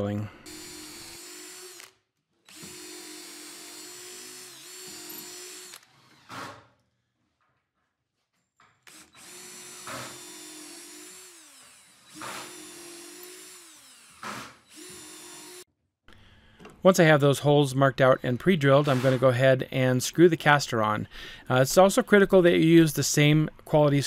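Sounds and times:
power drill drilling: 0.4s - 6.6s, 8.8s - 15.7s.

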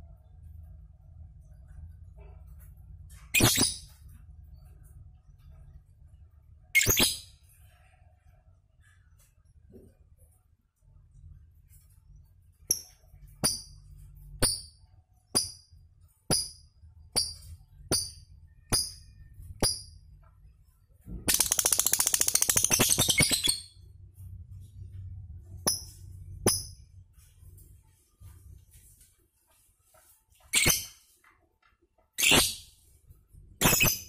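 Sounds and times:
bird chirping: 3.3s - 4.1s, 21.2s - 23.9s
bird rattling trill: 21.3s - 23.7s.

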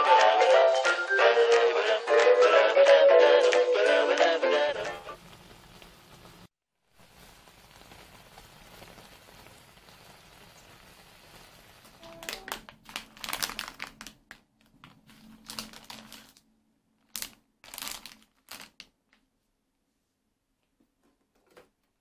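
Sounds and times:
sauce simmering in a pan: 5.2s - 12.1s
plastic packaging crinkling: 11.4s - 19.2s.

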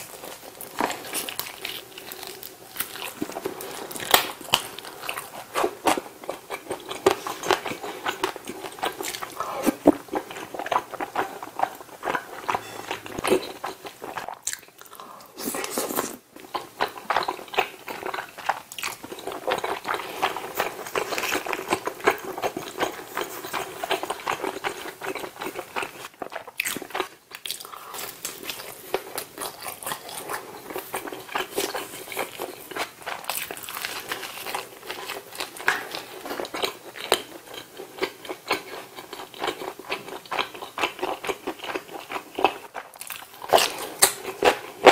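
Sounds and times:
wet chewing and smacking: 15.7s - 44.9s.

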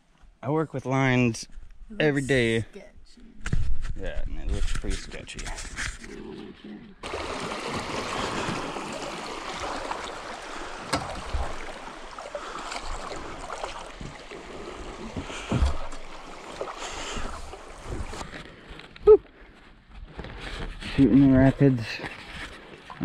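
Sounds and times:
dull knocks on canoe: 10.8s - 11.8s, 15.0s - 16.0s.

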